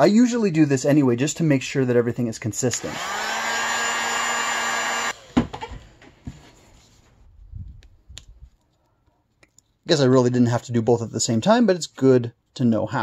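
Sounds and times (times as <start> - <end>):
heat gun whirring: 2.7 - 5.7.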